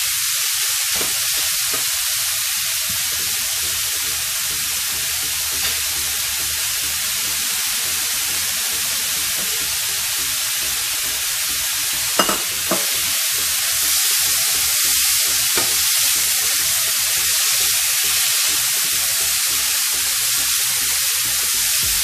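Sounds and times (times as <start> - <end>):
meat sizzling in a pan: 0.0 - 22.0.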